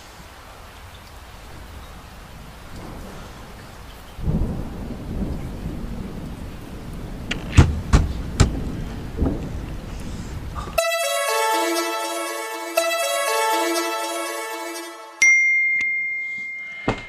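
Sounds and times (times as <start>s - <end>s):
rain: 0.0s - 10.8s
thunder rumble: 1.5s - 10.8s
sharp thunder cracks: 4.2s - 10.7s
music with bell-like tones: 10.8s - 17.0s.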